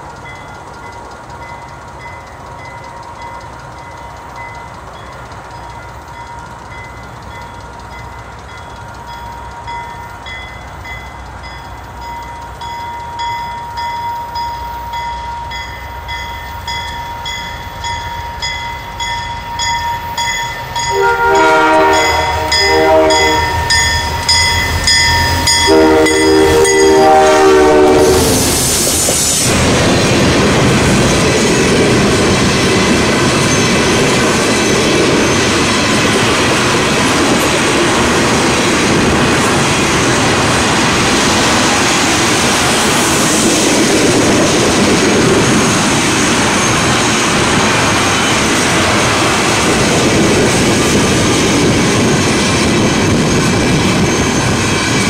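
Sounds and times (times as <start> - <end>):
train wheels clattering over track: 0.0 - 55.0
bell ringing: 0.2 - 27.4
train horn blasts: 20.8 - 23.9, 25.4 - 28.6.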